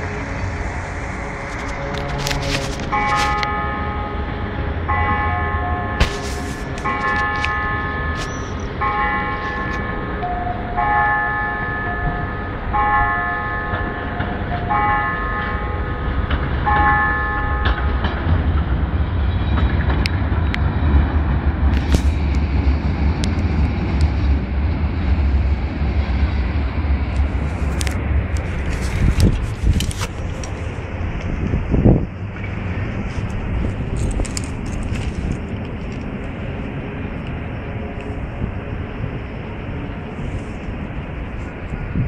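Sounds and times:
steady low rumble: 0:00.0 - 0:42.0
bell-like chime: 0:06.9 - 0:16.1, 0:16.7 - 0:18.0.

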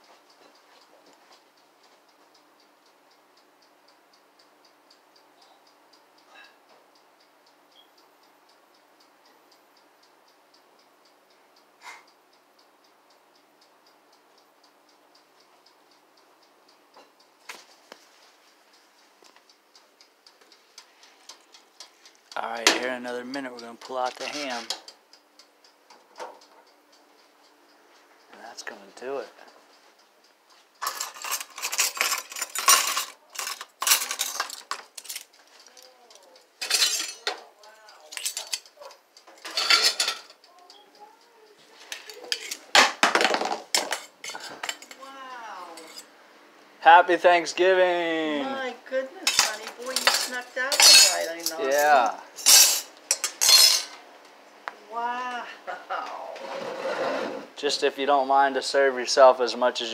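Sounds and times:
mechanical timer ticking: 0:00.0 - 0:43.1, 0:43.7 - 0:46.2, 0:46.8 - 0:53.9
dishes and utensils clattering: 0:30.8 - 0:35.2, 0:36.6 - 0:37.4, 0:39.4 - 0:40.3, 0:41.9 - 0:45.0, 0:49.3 - 0:54.0.

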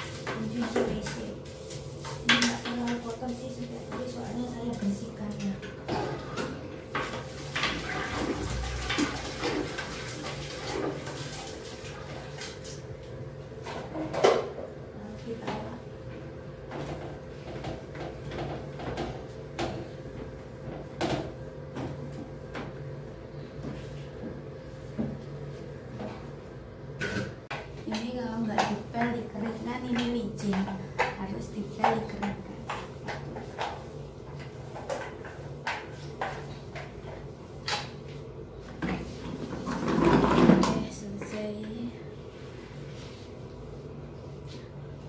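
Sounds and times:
toilet brush scraping in bowl: 0:00.0 - 0:12.8, 0:38.9 - 0:41.1.

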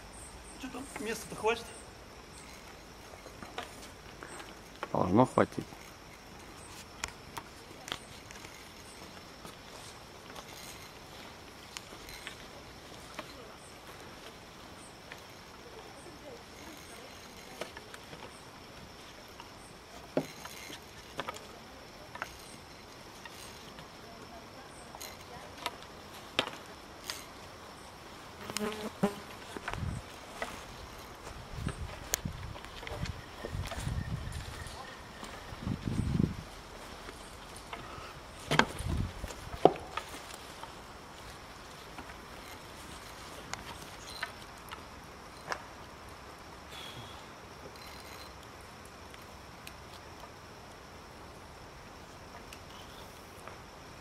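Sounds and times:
carabiners clicking and knocking: 0:47.7 - 0:48.4.

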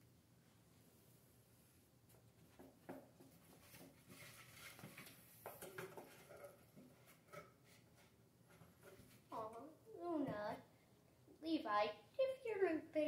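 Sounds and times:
cat scratching in cardboard box: 0:03.4 - 0:05.2.

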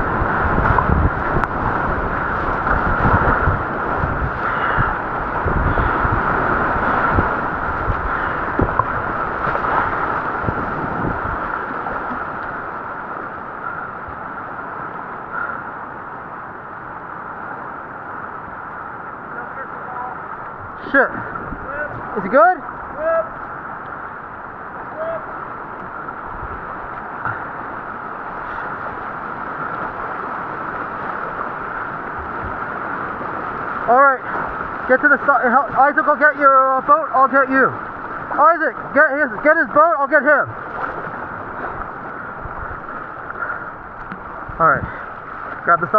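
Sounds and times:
whitewater rushing: 0:00.0 - 0:45.9
low thumps: 0:07.1 - 0:11.4.

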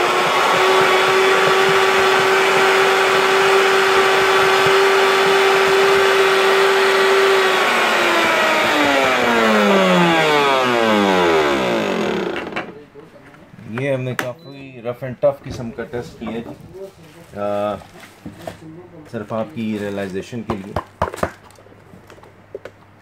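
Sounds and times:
blender crushing ice: 0:00.0 - 0:12.7.

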